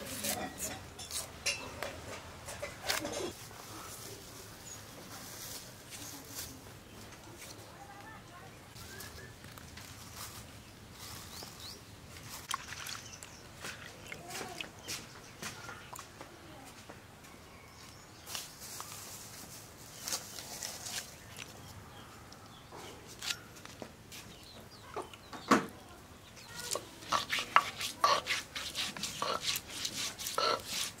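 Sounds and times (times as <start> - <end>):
chillies cut on a blade: 0.0 - 1.3, 26.6 - 31.0
stone roller crushing ginger: 26.6 - 31.0
chickens clucking: 27.0 - 28.4, 29.1 - 29.6, 30.2 - 30.8.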